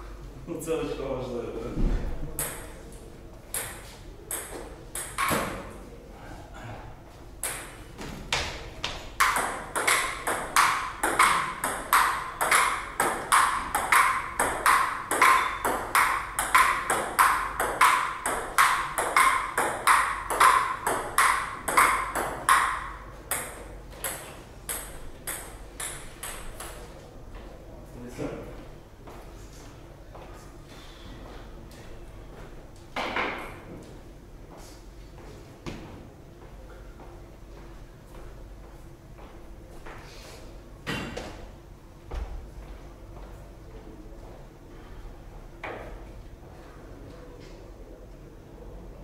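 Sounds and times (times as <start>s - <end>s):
bat hitting table tennis ball: 2.4s - 2.7s, 3.6s - 5.7s, 7.4s - 7.8s, 8.4s - 26.8s
table tennis ball bouncing: 2.4s - 2.8s, 3.5s - 5.7s, 7.4s - 26.8s.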